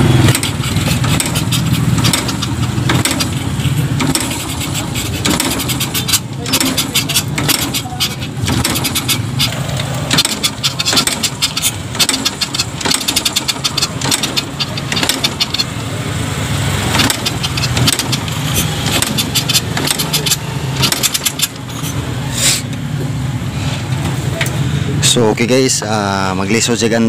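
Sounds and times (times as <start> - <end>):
motorcycle engine turning over: 0.0 - 24.6
kick lever clattering knocks: 0.3 - 15.8.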